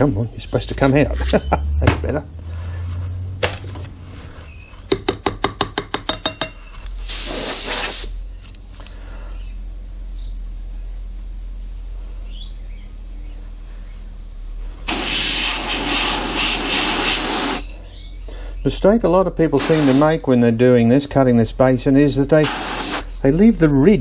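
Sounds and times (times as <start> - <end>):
compressed air blasts: 7.0 - 8.2, 14.8 - 17.7, 19.6 - 20.2, 22.4 - 23.2.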